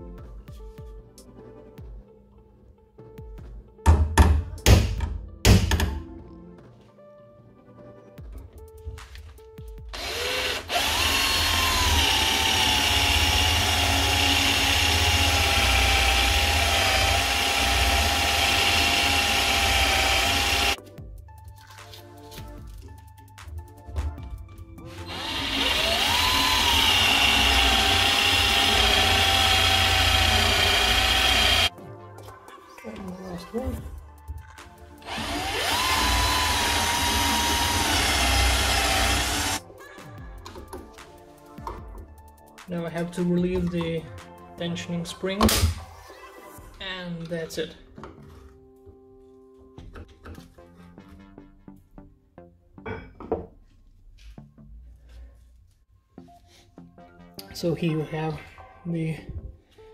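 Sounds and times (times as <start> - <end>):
electric drill whining: 9.9 - 20.8, 24.9 - 31.7, 35.0 - 39.6.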